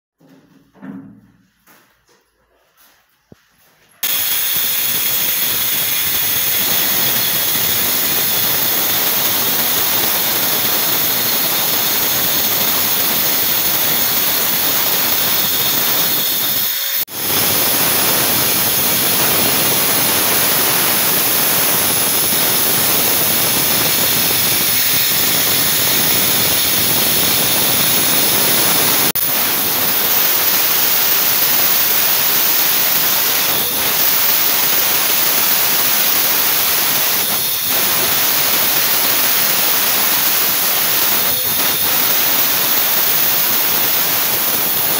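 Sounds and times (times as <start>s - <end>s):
angle grinder cutting tile: 4.0s - 44.9s.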